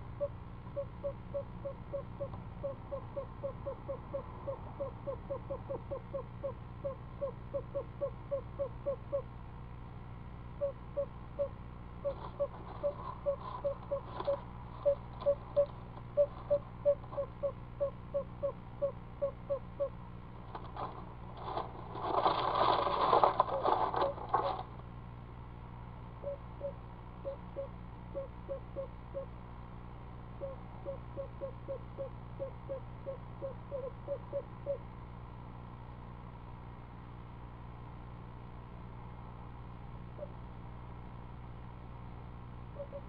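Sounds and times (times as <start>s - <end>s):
owl soft chugging call: 0.1s - 9.3s, 10.6s - 20.0s, 26.2s - 29.4s, 30.4s - 34.8s, 42.7s - 43.0s
scraping and rustling on nest floor: 20.4s - 24.8s.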